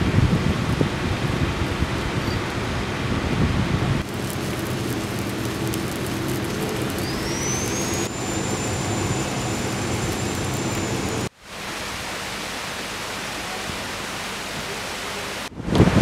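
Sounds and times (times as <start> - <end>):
quiet steady rushing noise: 0.0 - 16.0
arc welding hiss: 4.0 - 11.3
low machine hum: 4.0 - 11.3
thin high whine: 4.0 - 11.3.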